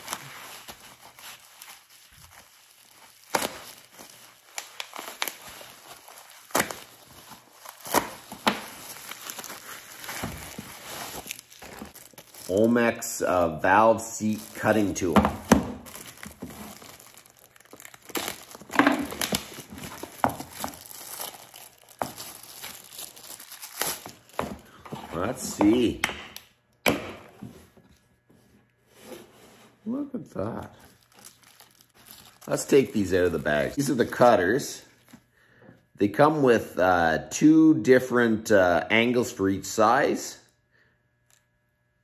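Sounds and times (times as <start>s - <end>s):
tape ripping: 0.0s - 12.7s, 14.2s - 27.0s
plastic wrapping crinkling: 0.0s - 26.0s, 30.4s - 35.2s.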